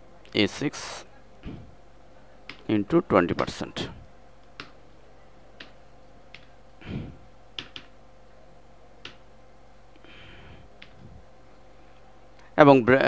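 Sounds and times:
faint steady hum: 0:00.0 - 0:13.0
computer keyboard key presses: 0:07.6 - 0:07.9.

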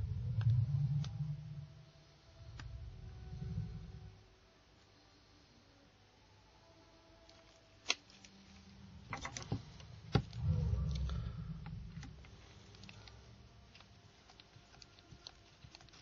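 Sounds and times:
gloved hands rustling: 0:07.2 - 0:11.1, 0:11.8 - 0:16.0
plastic clips snapping: 0:07.3 - 0:08.3.

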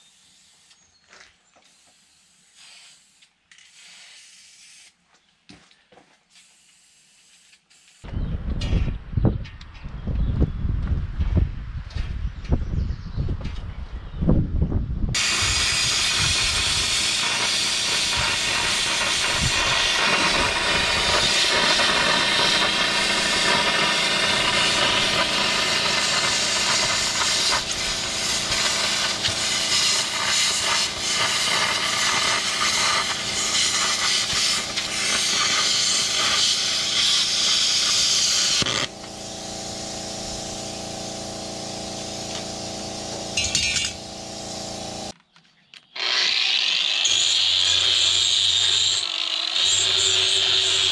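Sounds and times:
plasma cutter hissing: 0:01.7 - 0:04.9, 0:15.2 - 0:45.1
machine hum: 0:15.2 - 0:45.1.

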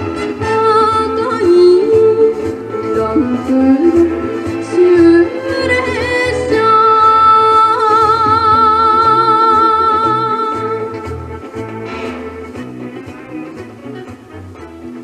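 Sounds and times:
recorded instrumental backing track: 0:00.0 - 0:15.0
girl singing into a microphone: 0:00.4 - 0:10.9.

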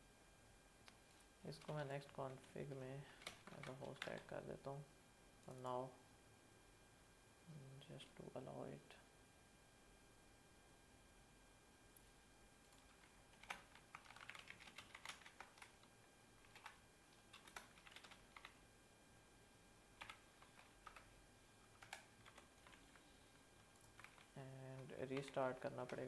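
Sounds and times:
faint keyboard typing: 0:00.9 - 0:04.4, 0:12.0 - 0:18.6, 0:20.0 - 0:26.0.

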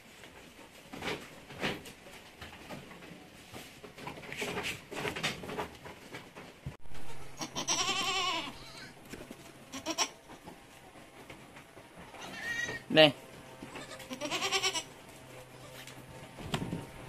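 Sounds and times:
goat bleating: 0:06.9 - 0:09.0, 0:09.6 - 0:10.2, 0:12.1 - 0:12.9, 0:13.6 - 0:15.9
light knocks and rustling: 0:15.1 - 0:17.0.

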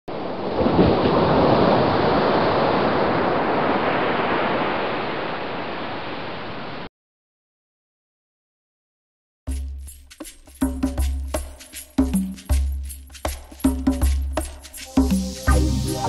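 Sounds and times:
ocean surf washing on beach: 0:00.1 - 0:06.9.

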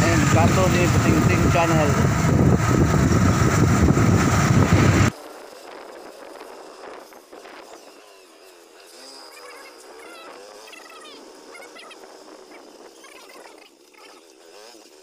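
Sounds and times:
wind buffeting microphone: 0:00.0 - 0:05.1
motorcycle engine riding: 0:00.0 - 0:15.0.

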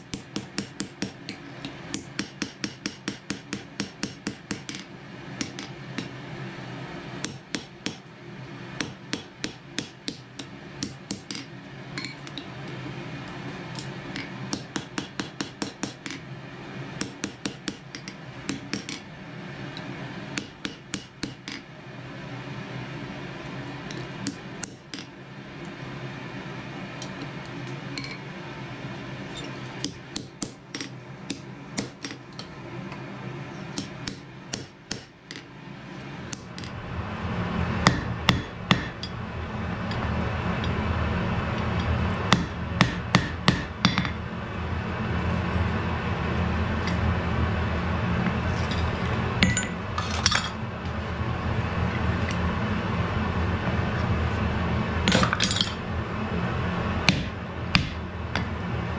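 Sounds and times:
hammer striking metal on anvil: 0:00.0 - 0:06.2, 0:08.8 - 0:12.4, 0:37.8 - 0:39.2, 0:42.3 - 0:44.2, 0:49.4 - 0:50.6, 0:57.0 - 0:58.6
steady low hum: 0:00.0 - 0:58.9.

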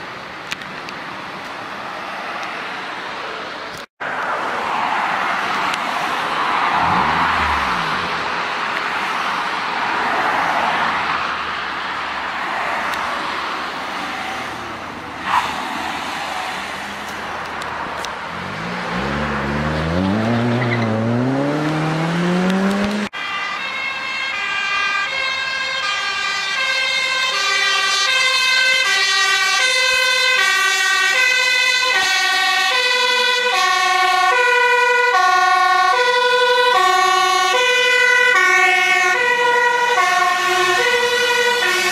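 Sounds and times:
road traffic: 0:00.0 - 0:41.9
vehicle engine speeding up: 0:04.7 - 0:11.1, 0:13.8 - 0:23.1
fire engine two-tone siren: 0:20.0 - 0:41.9.

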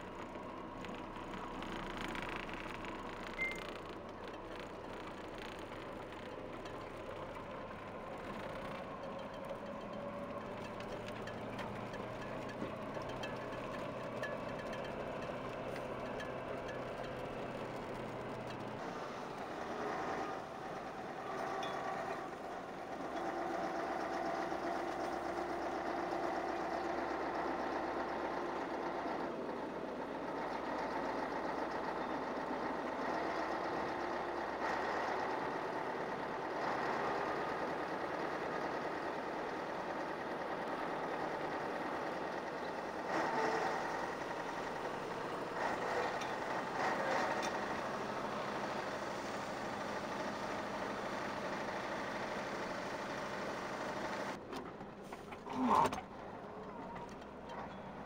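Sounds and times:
road noise: 0:00.0 - 0:58.0
truck engine drone: 0:00.0 - 0:58.0.

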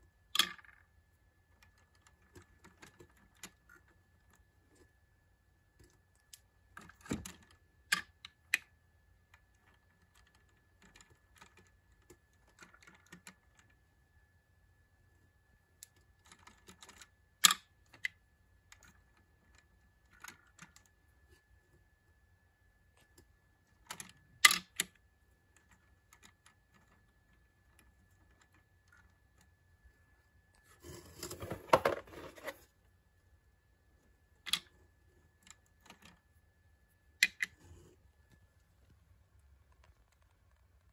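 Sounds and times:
plastic toy clicks and taps: 0:23.9 - 0:24.9, 0:37.2 - 0:37.5
plastic scuffing and rattling: 0:30.8 - 0:32.6.

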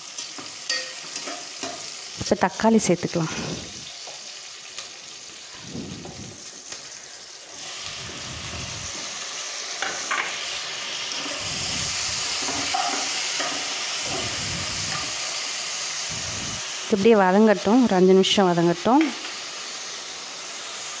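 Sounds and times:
food sizzling in hot oil: 0:00.0 - 0:21.0
metal turner clinking against pot: 0:00.2 - 0:01.8.

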